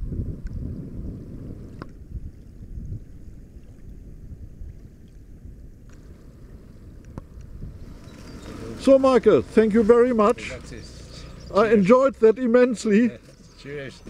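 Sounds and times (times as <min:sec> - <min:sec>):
wind buffeting microphone: 0:00.0 - 0:12.1
faint click: 0:07.0 - 0:07.5.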